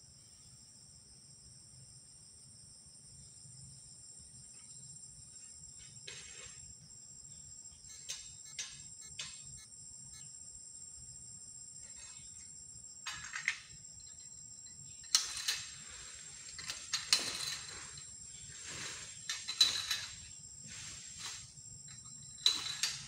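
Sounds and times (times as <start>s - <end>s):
high insect buzz: 0.0s - 23.0s.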